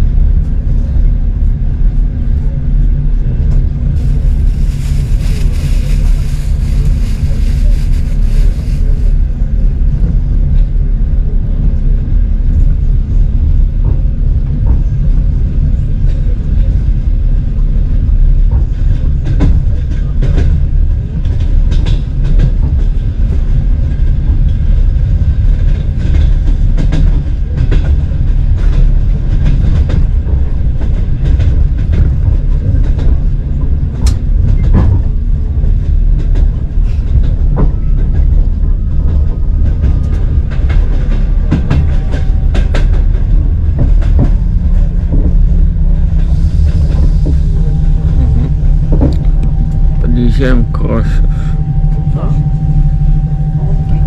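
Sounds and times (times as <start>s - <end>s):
train rumbling: 0.0s - 54.0s
sharp train clacks: 18.3s - 54.0s.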